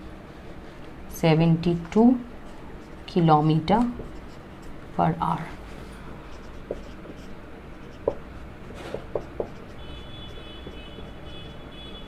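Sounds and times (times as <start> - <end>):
marker writing on whiteboard: 2.7 - 4.8, 6.2 - 12.0
marker tip tapping board: 6.6 - 7.2, 7.9 - 8.2, 8.8 - 9.7, 10.4 - 11.0.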